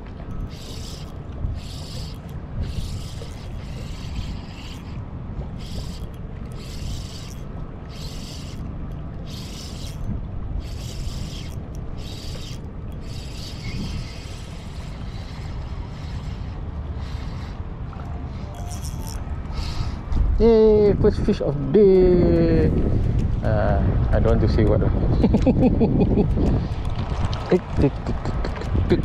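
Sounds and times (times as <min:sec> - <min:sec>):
fishing reel whirring: 0:00.0 - 0:20.7.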